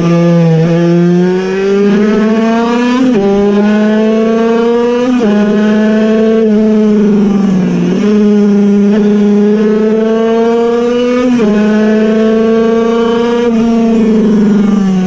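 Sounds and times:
two-stroke moped engine revving: 0.0 - 15.0.

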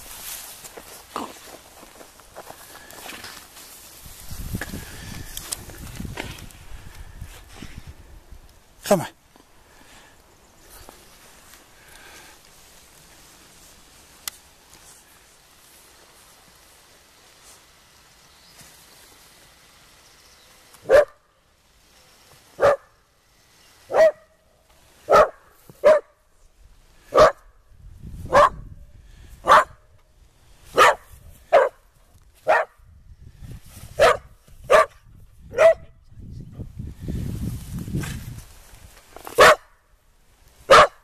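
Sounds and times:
dog barking: 20.8 - 21.2, 22.6 - 22.9, 23.9 - 24.3, 25.1 - 26.2, 27.1 - 27.4, 28.3 - 28.6, 29.4 - 29.8, 30.8 - 31.8, 32.4 - 32.8, 34.0 - 35.9, 39.4 - 39.8, 40.7 - 41.0.

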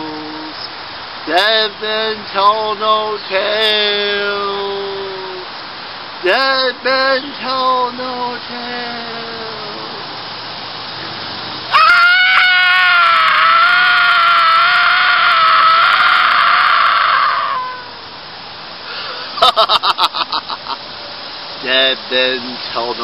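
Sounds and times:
person screaming high-pitched: 11.7 - 18.0.

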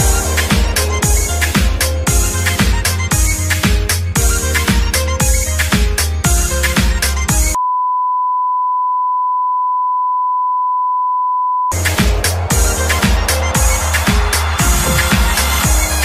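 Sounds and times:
electronic dance music: 0.0 - 7.6, 11.7 - 16.0.

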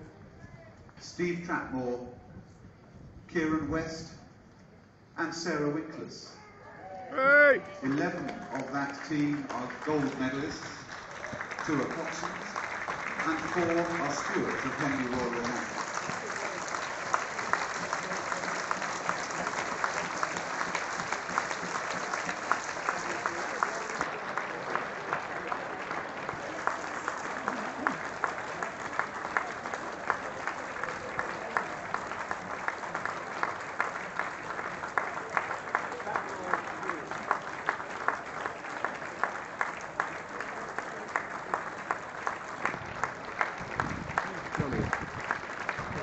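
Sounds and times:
crowd applauding: 7.1 - 46.0
sharp close hand claps: 7.9 - 46.0.

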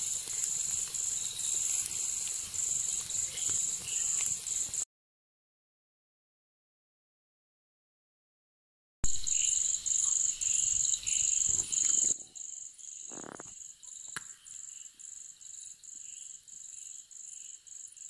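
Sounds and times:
cricket chirping: 0.0 - 4.8, 9.1 - 18.0.

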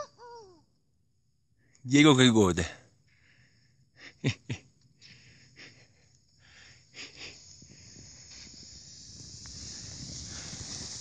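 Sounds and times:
skis scraping through snow: 7.6 - 11.0.

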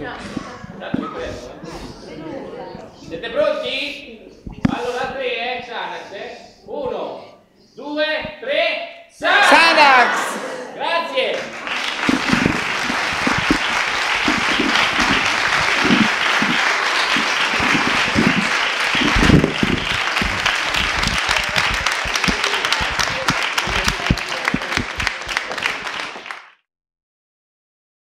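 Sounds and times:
voices over clapping: 9.2 - 26.5
audience applauding: 11.2 - 26.6.

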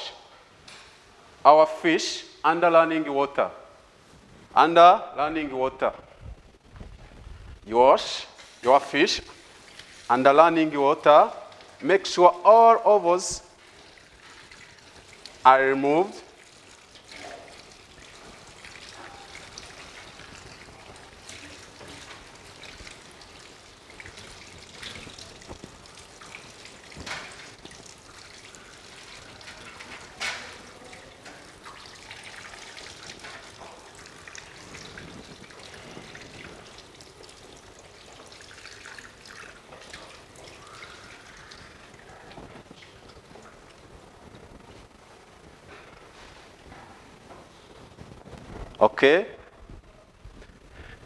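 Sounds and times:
water splashing: 13.1 - 43.8
tap water running into sink: 13.6 - 43.8.

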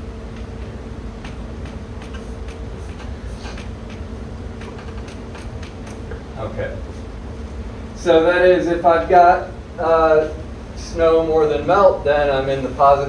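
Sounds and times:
low room hum: 0.0 - 13.0
chalk tapping on blackboard: 1.2 - 6.1.

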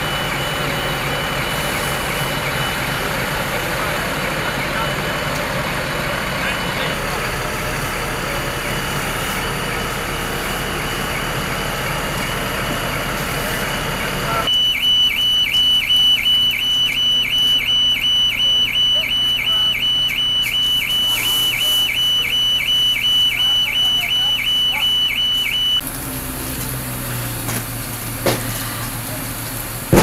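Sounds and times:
high electronic alarm tone: 0.0 - 6.6, 8.4 - 25.8
low engine hum: 0.0 - 14.5.

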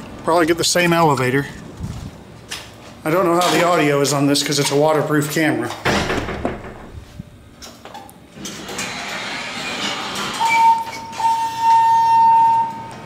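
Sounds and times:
elevator doors sliding open: 8.4 - 13.0.

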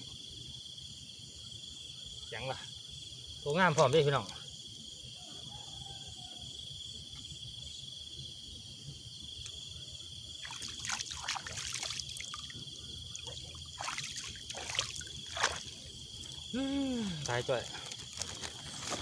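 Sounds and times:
high insect trill: 0.0 - 19.0
water splashing and dribbling: 10.4 - 16.5.

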